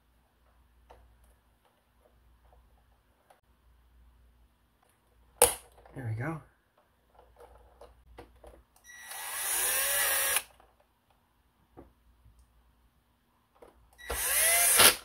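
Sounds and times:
electric screwdriver running: 8.9s - 10.5s, 14.0s - 15.0s.

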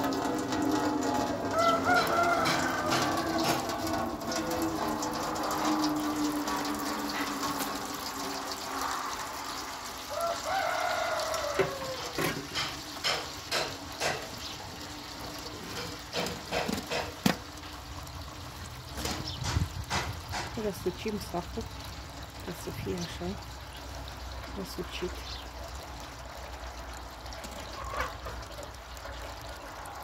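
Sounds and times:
liquid splashing and dripping: 0.0s - 30.0s
sharp knocks and clicks: 11.6s - 14.6s, 15.8s - 17.4s, 19.0s - 20.6s.

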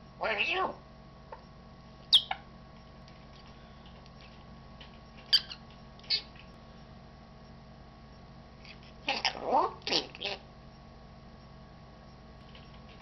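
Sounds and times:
parrot chirp: 0.2s - 0.8s, 2.1s - 2.5s, 5.3s - 6.4s, 9.1s - 10.4s
parrot clicks and squeaks: 2.1s - 2.4s, 3.8s - 6.6s.

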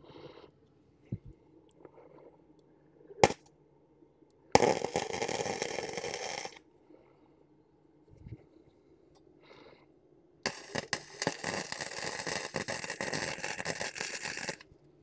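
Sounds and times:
arc welder crackling: 3.2s - 3.4s, 4.6s - 6.6s, 10.4s - 14.7s.

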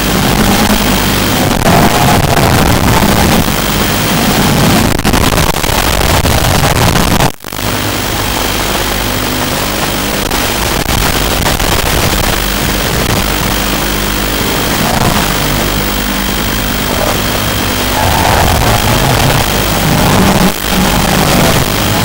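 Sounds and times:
quadcopter propellers buzzing: 13.6s - 22.0s.

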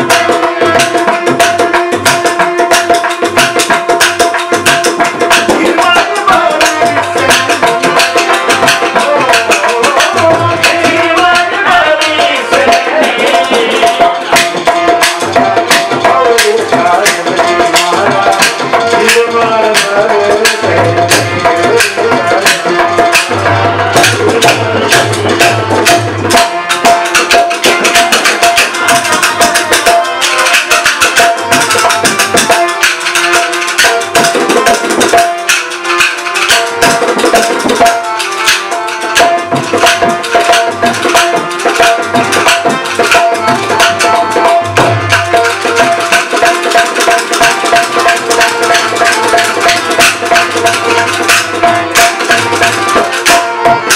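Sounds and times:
fast hand drumming: 0.0s - 53.9s
held harmonium note: 0.0s - 53.9s
clacking wooden clappers: 24.0s - 53.9s.

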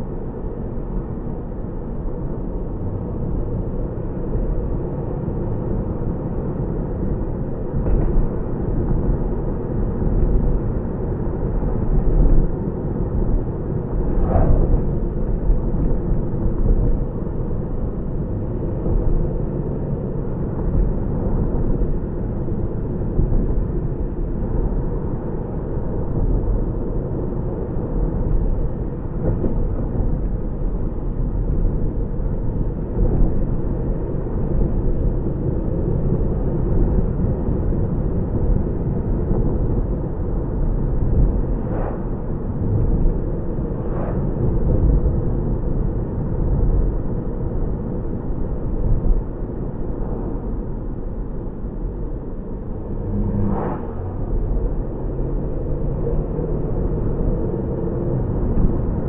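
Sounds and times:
car passing: 14.0s - 15.1s, 41.5s - 42.8s, 43.7s - 44.5s, 51.4s - 57.3s
car engine cruising: 49.5s - 59.0s
tyre and road rumble: 49.8s - 59.0s.

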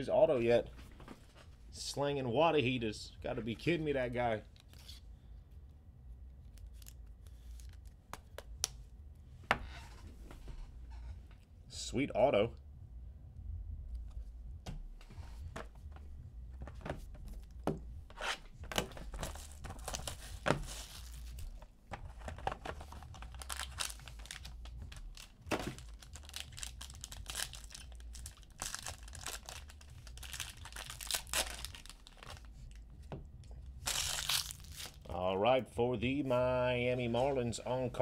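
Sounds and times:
plastic wrap tearing and crinkling: 18.3s - 21.6s, 22.3s - 32.8s, 33.8s - 35.1s.

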